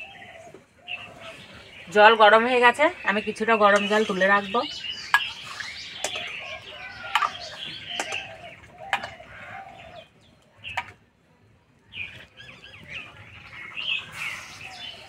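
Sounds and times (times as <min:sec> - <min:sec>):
chickens clucking: 0:05.2 - 0:10.0.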